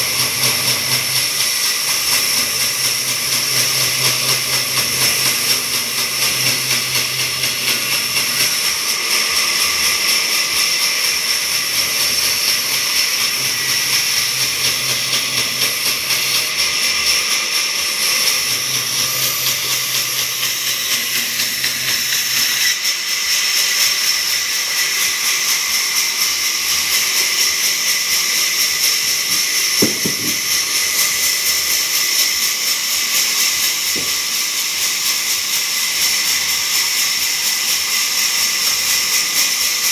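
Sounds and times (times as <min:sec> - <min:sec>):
band saw cutting timber: 0:00.0 - 0:39.9
knock: 0:29.8 - 0:30.5.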